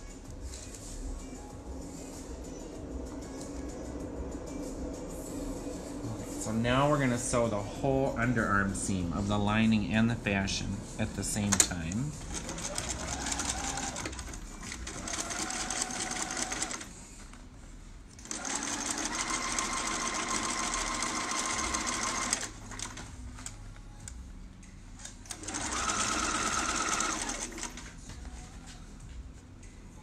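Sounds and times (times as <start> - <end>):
sewing machine stitching: 12.2 - 16.9, 18.2 - 23.1, 25.3 - 27.9.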